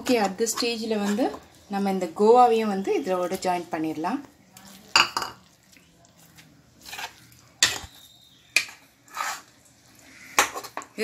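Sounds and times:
spoon scraping a pan: 0:00.0 - 0:01.5, 0:04.6 - 0:11.0.

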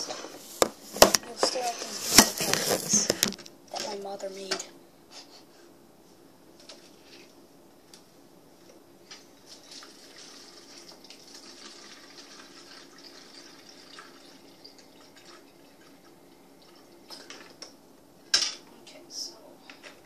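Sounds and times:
faucet water filling plastic bottle: 0:09.5 - 0:17.3.

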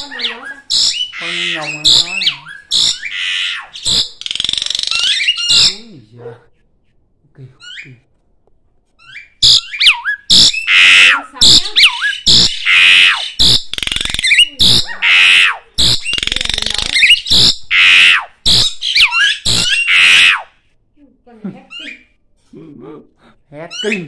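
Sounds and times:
starling harsh rasping calls: 0:00.0 - 0:06.0, 0:09.0 - 0:20.6, 0:23.7 - 0:24.0.

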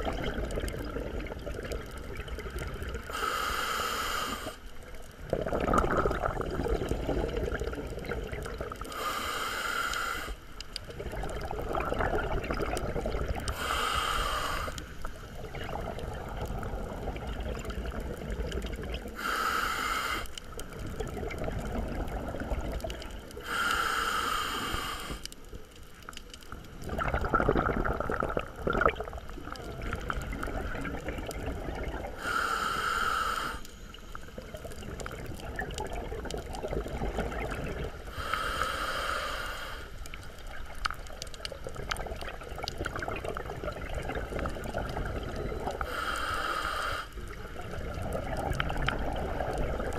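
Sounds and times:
bubbly gurgling exhalations: 0:00.0 - 0:03.5, 0:04.3 - 0:09.4, 0:10.8 - 0:23.8, 0:26.1 - 0:33.6, 0:34.3 - 0:46.1, 0:47.0 - 0:49.9
regulator inhale hiss: 0:03.1 - 0:04.8, 0:08.8 - 0:10.6, 0:13.5 - 0:15.4, 0:19.1 - 0:20.5, 0:23.3 - 0:25.5, 0:32.1 - 0:34.5, 0:38.0 - 0:40.2, 0:45.8 - 0:47.4.

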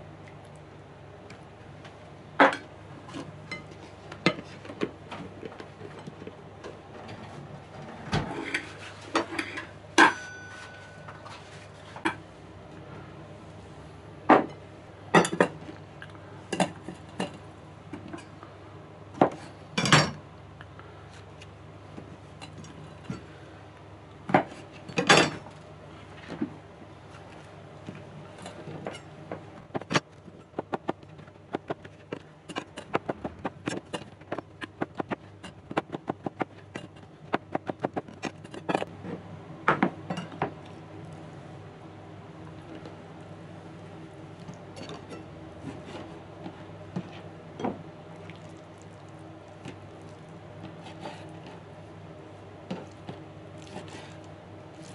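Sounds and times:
dishes and utensils clinking: 0:08.3 - 0:11.4, 0:15.2 - 0:15.6.

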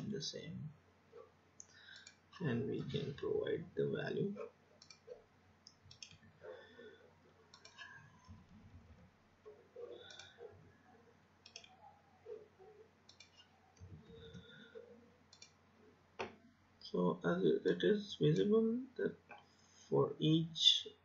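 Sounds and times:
mouse clicks: 0:04.8 - 0:06.2, 0:11.4 - 0:11.8, 0:13.1 - 0:14.5, 0:15.3 - 0:15.6.

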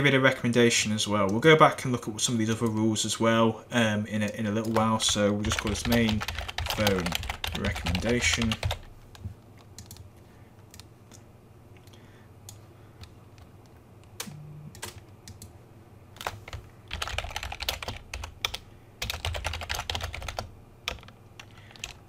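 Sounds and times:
typing on computer keyboard: 0:04.6 - 0:08.9, 0:16.2 - 0:22.0.

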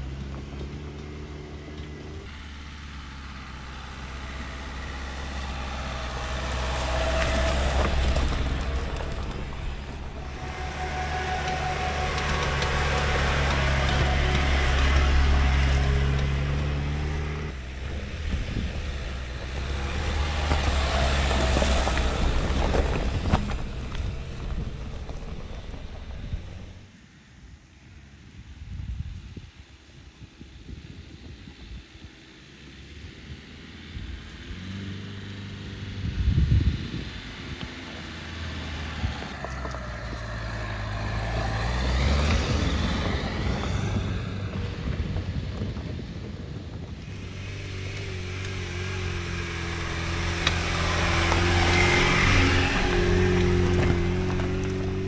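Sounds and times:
loose stones clicking under tyres: 0:00.0 - 0:26.8, 0:37.4 - 0:55.0
loud engine under load: 0:00.0 - 0:26.9, 0:33.8 - 0:55.0
quieter engine crawling: 0:00.0 - 0:55.0
stones knocking under tyres: 0:04.9 - 0:10.2, 0:47.9 - 0:55.0
wind on microphone: 0:35.9 - 0:38.2, 0:41.2 - 0:55.0.

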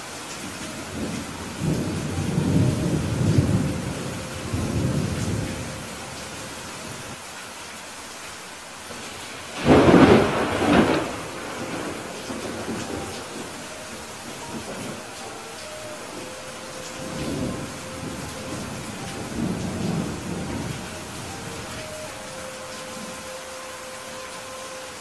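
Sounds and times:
steady rain: 0:00.0 - 0:25.0
thunder rumbling: 0:00.6 - 0:07.2, 0:08.9 - 0:23.4
thunderclap: 0:09.6 - 0:13.6.

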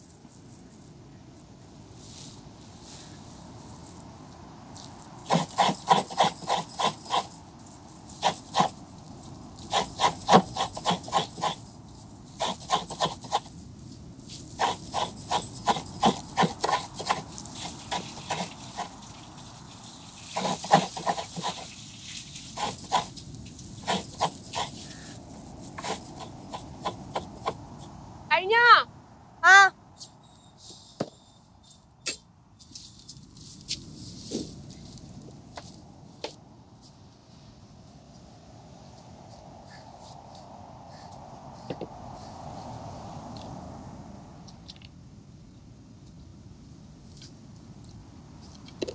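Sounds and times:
coconut being scraped by hand: 0:05.2 - 0:07.4, 0:08.1 - 0:13.6, 0:14.3 - 0:27.8.

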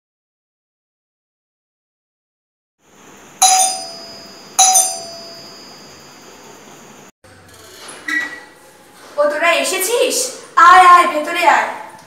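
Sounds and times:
doorbell chiming: 0:03.4 - 0:05.8.

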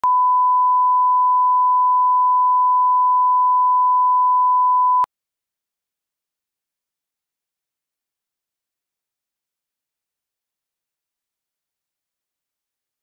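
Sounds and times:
steady test tone beep: 0:00.0 - 0:05.1.

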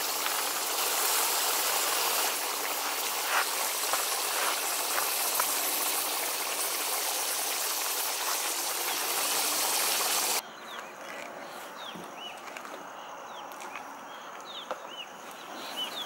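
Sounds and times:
meat sizzling in oil: 0:00.0 - 0:10.4
bird chirps: 0:10.4 - 0:13.5, 0:14.1 - 0:16.0.

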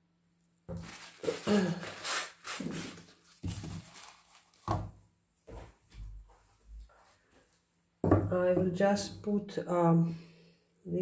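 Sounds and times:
canvas rustling and scraping: 0:00.8 - 0:04.7.

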